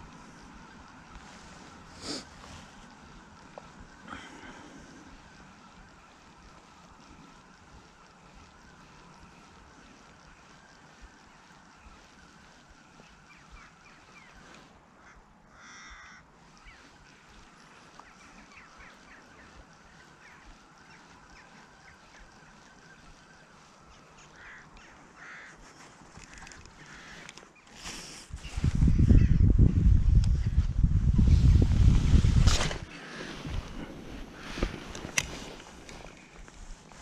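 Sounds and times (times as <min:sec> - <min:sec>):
faint outdoor hiss: 0:00.0 - 0:37.0
waterfowl honking: 0:15.0 - 0:16.3, 0:23.9 - 0:25.6.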